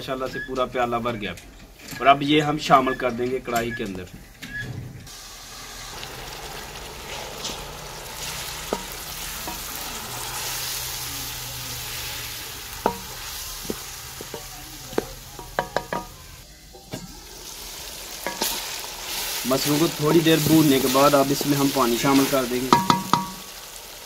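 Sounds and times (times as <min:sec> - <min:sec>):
lentils sizzling in oil: 0:05.1 - 0:24.0
wooden spatula stirring: 0:06.0 - 0:16.3, 0:17.7 - 0:23.4
knocks against a pot: 0:22.7 - 0:23.4.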